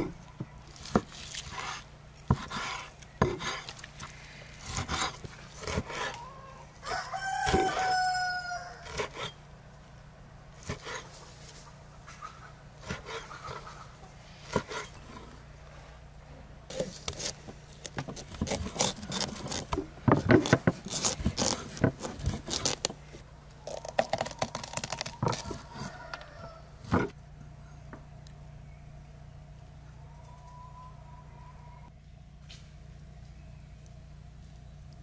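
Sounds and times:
knife crunching through pumpkin rind: 0.7s - 6.2s, 16.7s - 27.0s.

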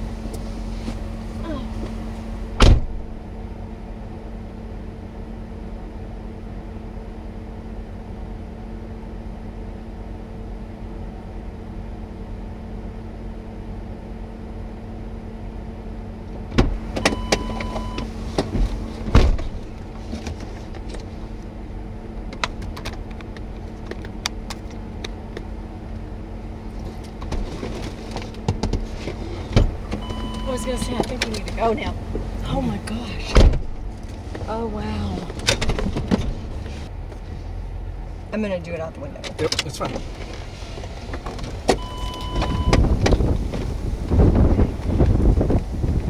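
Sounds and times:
vehicle idling hum: 0.0s - 46.0s
short electronic beep: 17.0s - 18.1s, 30.0s - 30.9s, 41.8s - 42.8s.

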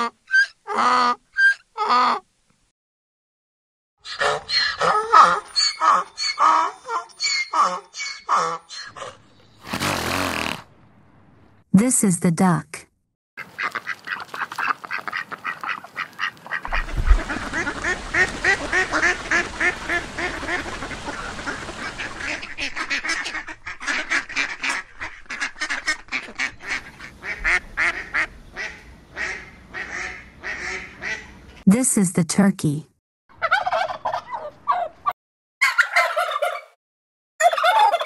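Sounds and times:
ducks quacking: 4.0s - 9.2s, 13.4s - 31.4s.

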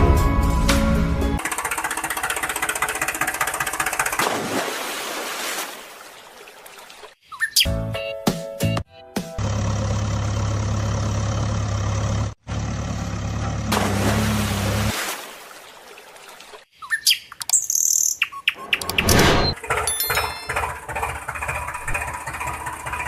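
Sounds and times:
birds chirping: 16.7s - 20.6s.

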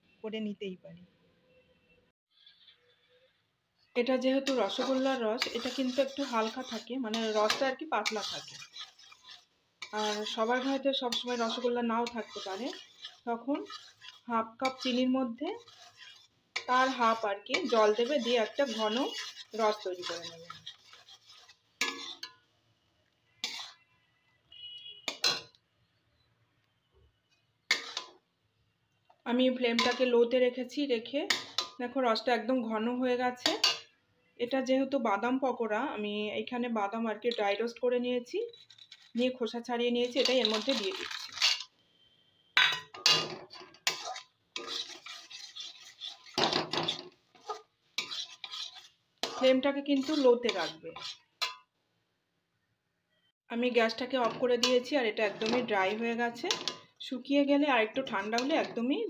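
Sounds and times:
metal spatula scraping pan: 2.3s - 3.3s, 4.0s - 22.5s, 23.3s - 25.6s, 27.7s - 28.2s, 29.6s - 30.4s, 31.0s - 31.8s, 33.3s - 34.0s, 38.4s - 41.7s, 42.6s - 51.7s, 53.9s - 57.0s, 57.8s - 59.0s.

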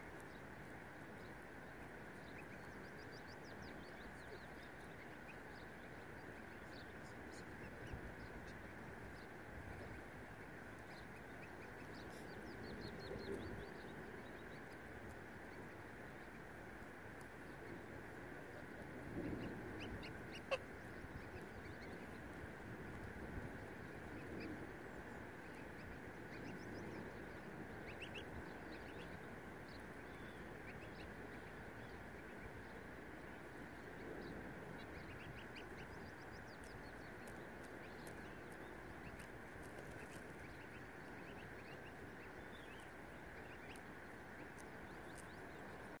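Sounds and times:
steady background hiss: 0.0s - 46.0s
waterfowl calling faintly: 14.6s - 22.1s.

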